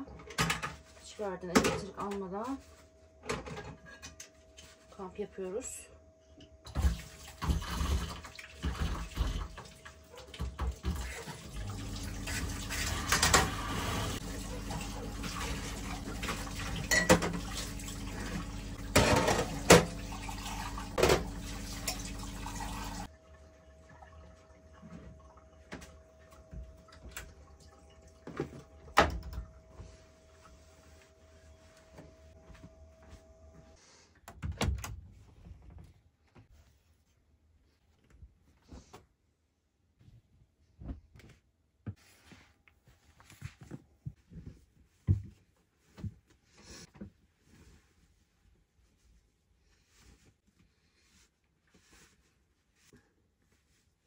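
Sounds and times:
dishes clattering and clinking: 16.7 - 17.6, 18.8 - 20.0.

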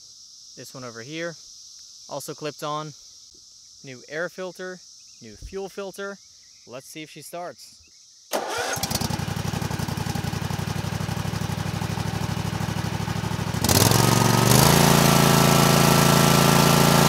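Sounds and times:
mower engine idling and revving: 8.3 - 17.0.

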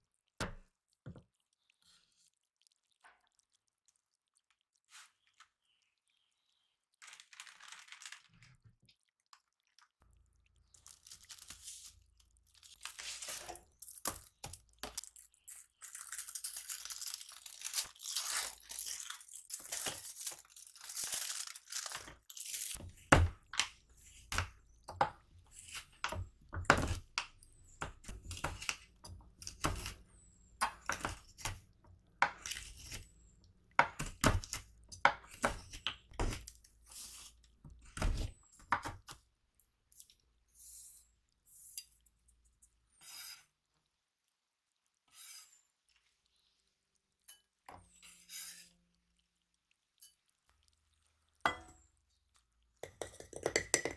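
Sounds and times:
foil crinkling and tearing: 7.0 - 8.6, 10.8 - 14.0, 15.5 - 22.8.

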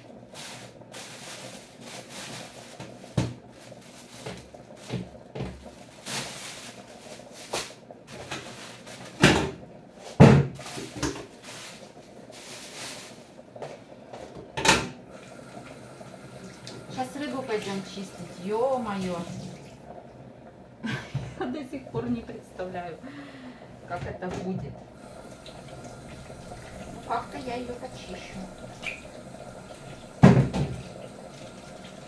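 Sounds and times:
plastic bags rustling: 0.3 - 9.3, 10.5 - 13.4, 24.9 - 32.0
kitchen utensils clattering: 29.7 - 31.3.

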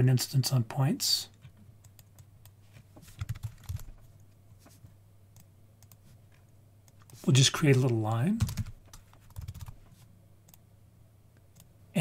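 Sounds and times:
low steady hum: 0.0 - 12.0
keyboard typing: 1.8 - 4.3, 6.9 - 9.8.

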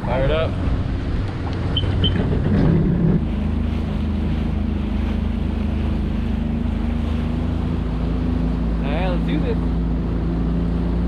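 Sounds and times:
wind on microphone: 0.0 - 8.9
jet ski engine running: 0.0 - 11.0
water splashing under hull: 0.0 - 11.0.

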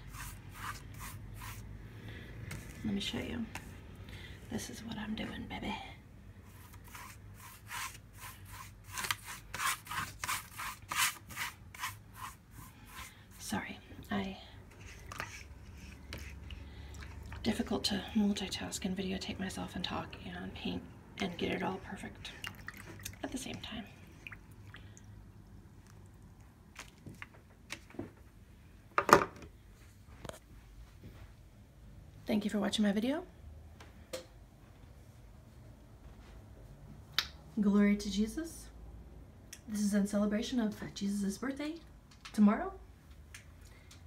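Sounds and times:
paintbrush scrubbing canvas: 0.0 - 1.7, 6.5 - 13.5, 14.7 - 17.3.

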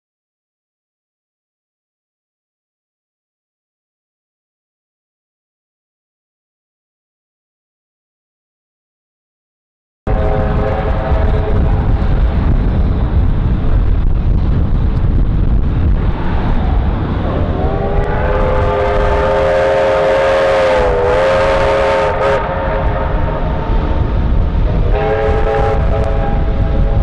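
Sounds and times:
steam locomotive whistle: 10.1 - 12.1, 17.3 - 27.0
low rumble: 10.1 - 27.0.

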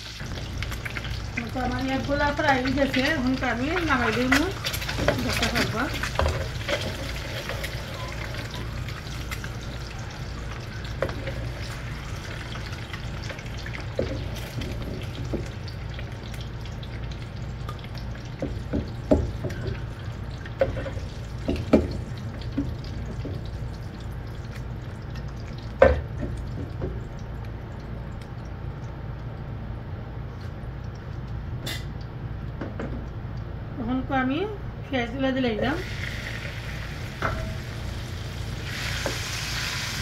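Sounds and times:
oil sizzling in a frying pan: 0.0 - 28.0, 35.4 - 40.0
steady low hum: 0.1 - 40.0.

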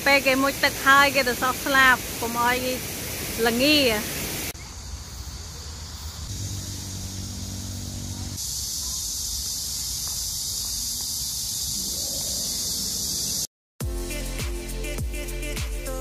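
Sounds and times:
high-pitched insect drone: 4.6 - 13.5.

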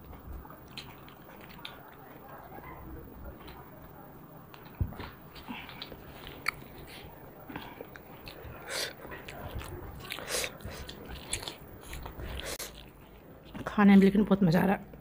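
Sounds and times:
chewing and lip smacking: 0.0 - 2.8, 4.5 - 13.6.

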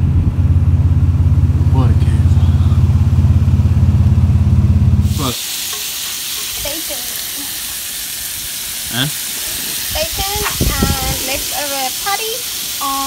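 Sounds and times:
vehicle engine droning: 0.0 - 5.4
bacon sizzling in a frying pan: 5.0 - 13.0.

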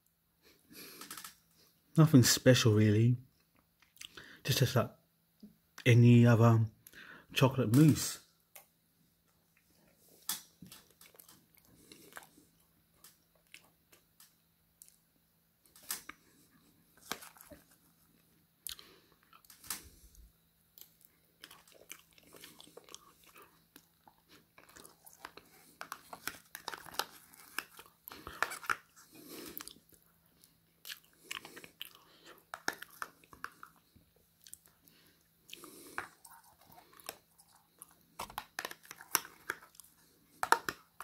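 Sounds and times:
mouth sounds of eating: 20.8 - 38.1.

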